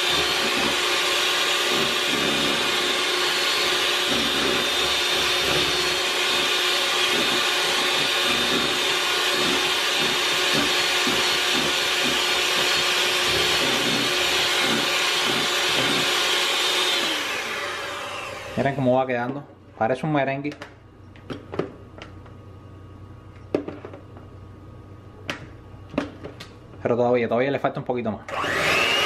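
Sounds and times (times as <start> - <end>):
electric hand mixer whining: 0.0 - 18.8, 28.3 - 29.0.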